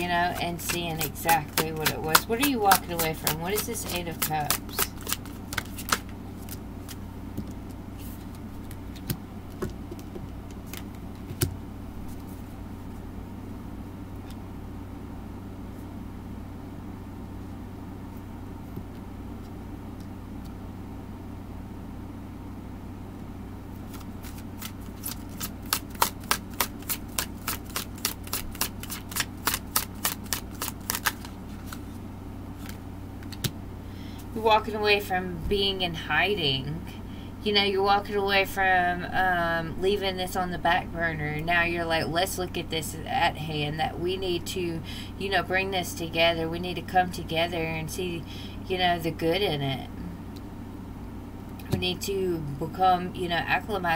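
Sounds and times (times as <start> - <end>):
cards shuffling and snapping: 0.3 - 12.3, 23.9 - 32.0, 32.6 - 33.6.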